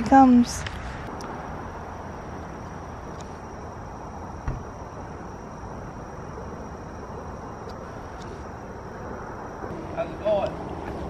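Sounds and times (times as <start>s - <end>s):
high-pitched insect drone: 0.0s - 11.0s
single knock: 4.4s - 4.6s.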